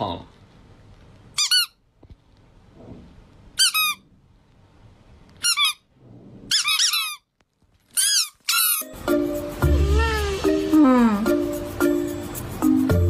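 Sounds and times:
squeaky toy squeaks: 1.4 - 1.8, 3.6 - 4.0, 5.4 - 5.9, 6.5 - 7.3, 7.9 - 9.0.

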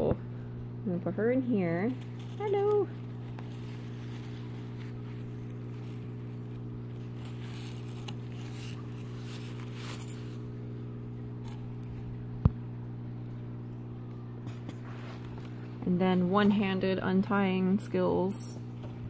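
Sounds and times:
low electrical hum: 0.0 - 19.0
cloth bag rustling: 1.9 - 10.7, 14.5 - 16.7.

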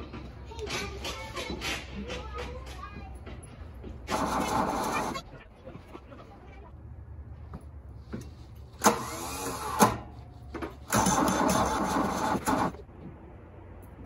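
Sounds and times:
diesel engine cranking: 3.9 - 5.3, 8.6 - 13.0.

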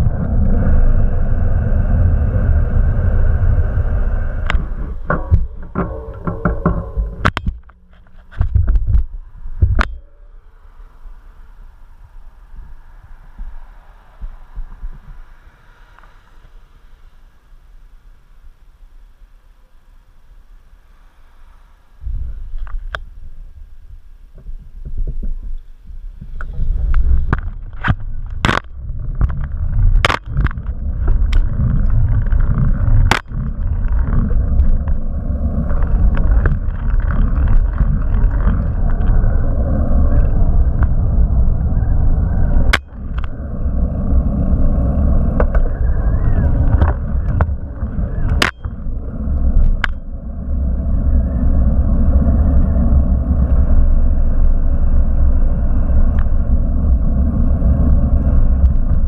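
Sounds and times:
bicycle rolling rumble: 0.0 - 59.0
sharp knocks: 5.0 - 10.0.

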